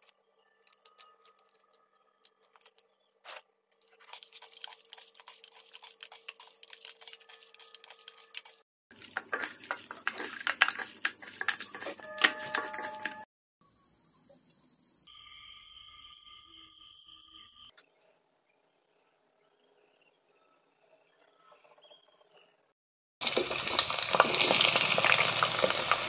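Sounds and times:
hands kneading wet meat: 4.0 - 13.2.

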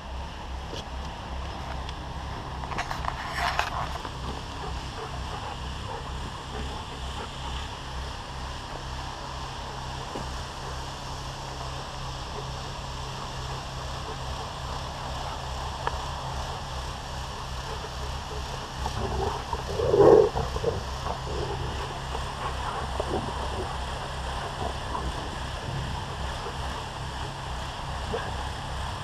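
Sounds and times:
wind rumble on microphone: 0.0 - 29.0
microphone rubbing noise: 2.4 - 7.8, 17.2 - 28.4
dog vocalization: 2.8 - 28.9.

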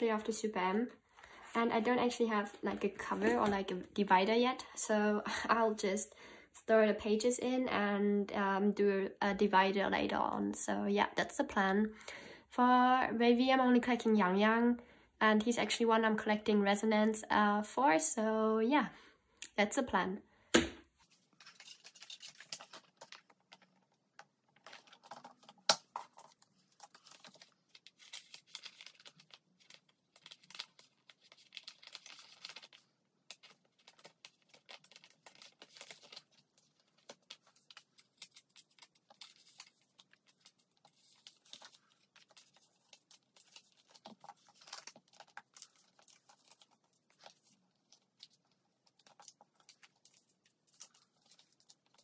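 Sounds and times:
plastic sleeves rustling: 0.0 - 4.1, 20.8 - 52.0.

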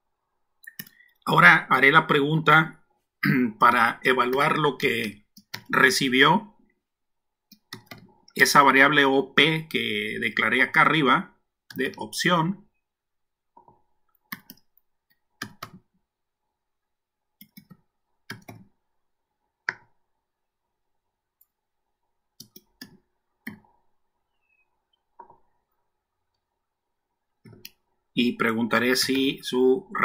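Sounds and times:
keyboard and mouse clicks: 0.6 - 1.2, 5.3 - 5.8, 7.5 - 8.4, 13.5 - 16.0, 17.4 - 18.8, 19.6 - 20.0, 22.4 - 23.8, 24.9 - 25.5, 27.4 - 27.9.

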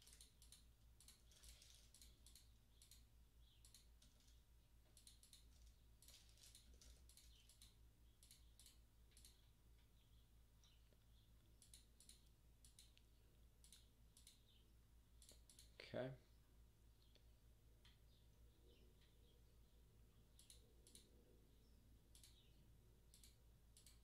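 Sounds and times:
keyboard typing: 0.0 - 9.5, 10.6 - 14.5, 15.1 - 15.8, 20.3 - 21.2, 22.0 - 24.0
mouse clicks: 0.1 - 4.3, 4.9 - 10.0, 10.6 - 14.6, 15.2 - 15.8, 20.3 - 21.1, 22.1 - 22.5, 23.1 - 24.0.

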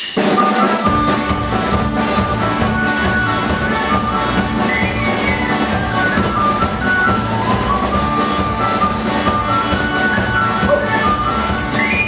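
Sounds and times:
folk-punk band playing: 0.0 - 12.0
accordion: 0.2 - 12.0
tin whistle melody: 2.6 - 12.0.

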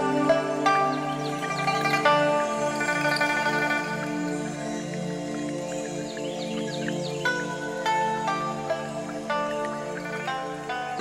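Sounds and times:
plucked notes over low tones: 0.0 - 11.0.

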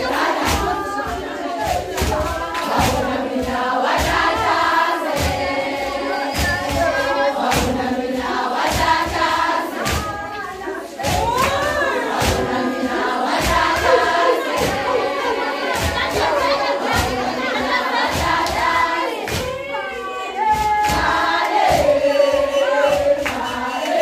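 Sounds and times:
women singing in chorus: 0.0 - 24.0
hand claps: 11.0 - 12.6, 18.1 - 19.6, 22.8 - 24.0.

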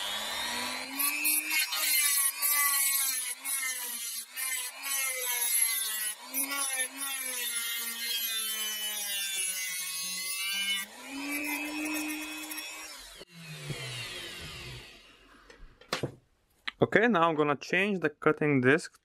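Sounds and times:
rotary tool cutting metal: 0.0 - 15.2.

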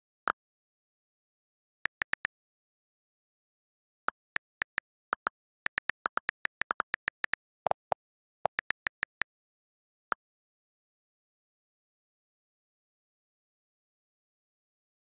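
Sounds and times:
on-screen keyboard clicks: 1.9 - 2.3, 4.1 - 9.3.

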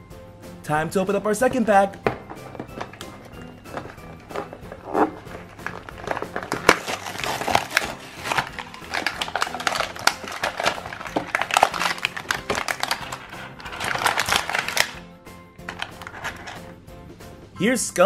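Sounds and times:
plastic packaging crinkling: 2.2 - 15.0, 15.6 - 16.6.

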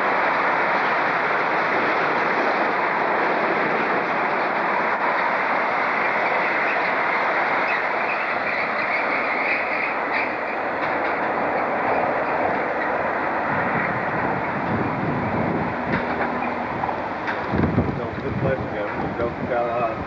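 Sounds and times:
train wheels rolling on rails: 0.0 - 20.0.

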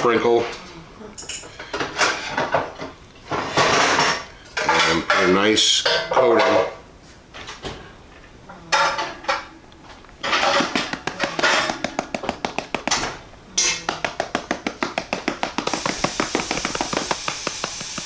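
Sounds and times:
spice shaker rattling: 15.6 - 18.0.

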